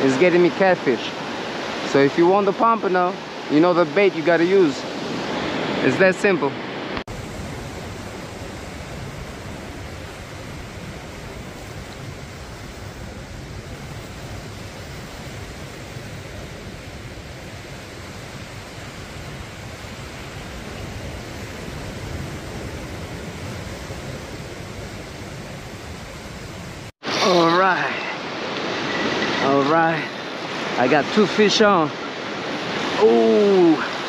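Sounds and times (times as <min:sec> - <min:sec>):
ocean surf breaking: 0:00.0 - 0:34.0.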